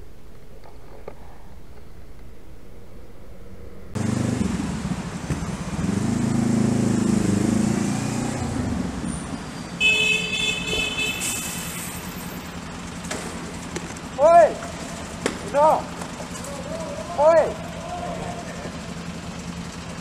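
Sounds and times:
traffic noise in tunnel: 0:00.0 - 0:20.0
motorcycle engine running: 0:03.4 - 0:07.7, 0:12.3 - 0:20.0
vehicle horn: 0:09.8 - 0:11.9.

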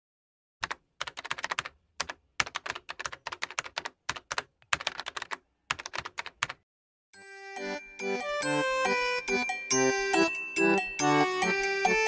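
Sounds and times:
keyboard typing: 0:00.6 - 0:06.6.

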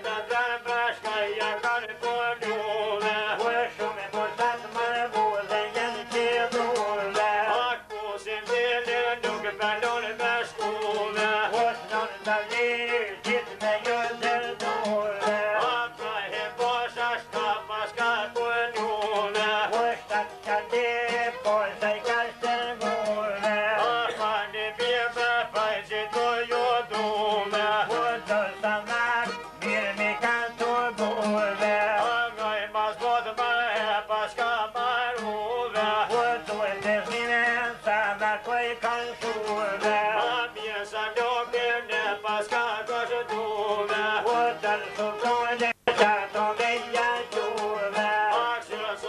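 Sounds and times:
violin melody: 0:00.0 - 0:32.6
man singing: 0:00.0 - 0:49.0
plucked lute: 0:00.0 - 0:49.0.

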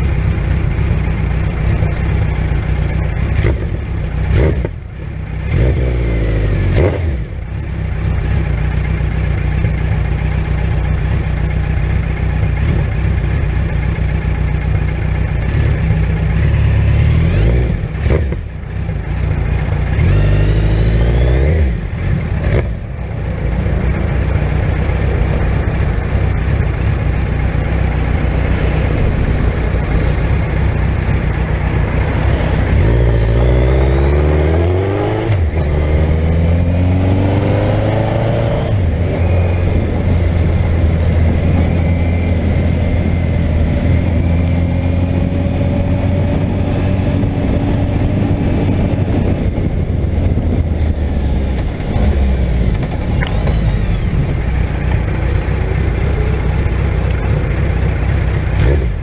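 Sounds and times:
motorcycle engine running: 0:00.0 - 0:59.0
wind noise: 0:27.6 - 0:56.3.

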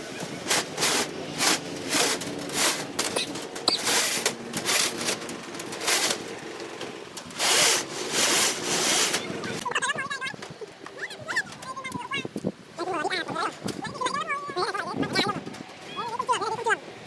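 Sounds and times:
rebar scraping on plastic tarp: 0:00.4 - 0:06.5, 0:07.4 - 0:09.5.

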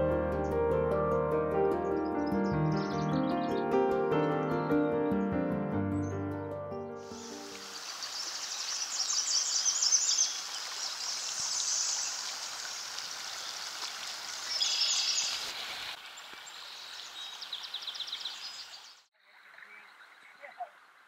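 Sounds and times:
creek water rippling over rocks: 0:07.1 - 0:21.0
songbird trilling: 0:07.2 - 0:12.2, 0:14.4 - 0:15.4, 0:16.6 - 0:19.0.

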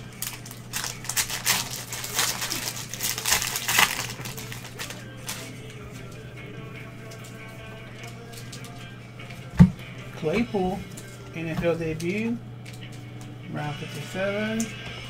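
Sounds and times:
wrapper crinkling and tearing: 0:00.0 - 0:05.6
wrapper rustling: 0:00.0 - 0:06.2, 0:07.0 - 0:08.9.

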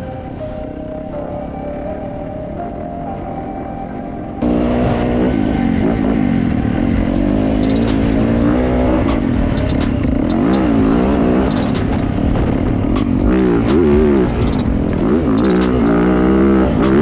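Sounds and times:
dirt bike engine revving: 0:04.4 - 0:17.0
sharp ticks: 0:06.8 - 0:16.0.

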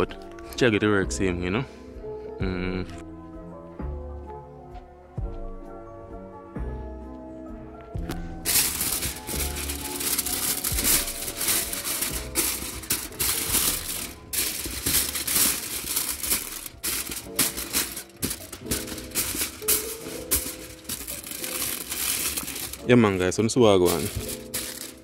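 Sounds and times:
background music: 0:00.0 - 0:25.0
aluminium foil crinkling: 0:08.4 - 0:25.0.

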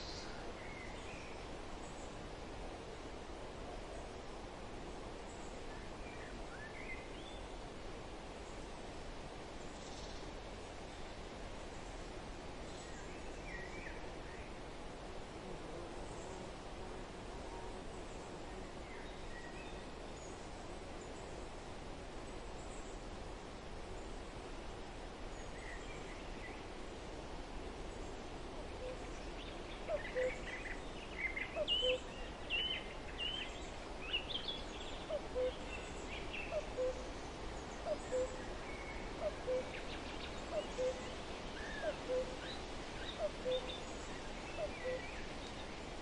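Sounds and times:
mixed birdsong: 0:28.8 - 0:45.9.

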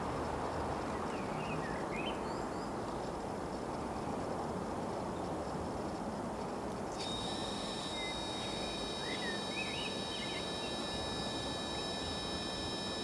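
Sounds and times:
bird chirps: 0:06.9 - 0:13.0.

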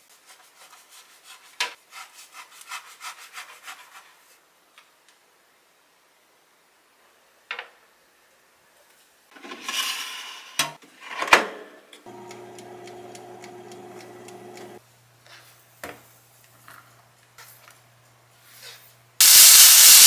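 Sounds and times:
air fryer fan humming: 0:12.1 - 0:14.8.

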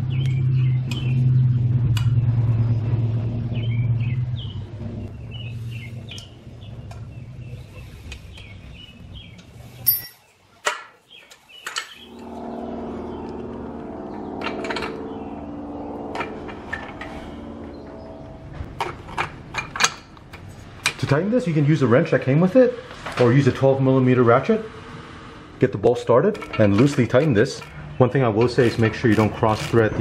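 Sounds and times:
low vehicle rumble: 0:00.0 - 0:10.1, 0:12.0 - 0:30.0
birds chirping: 0:03.5 - 0:18.6
steady hum: 0:12.0 - 0:21.3.

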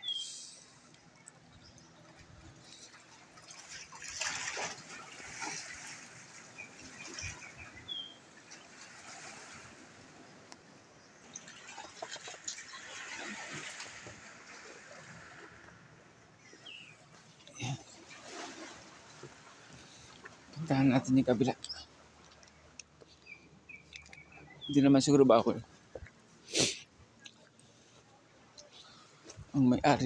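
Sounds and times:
short bird chirps: 0:00.0 - 0:00.8.

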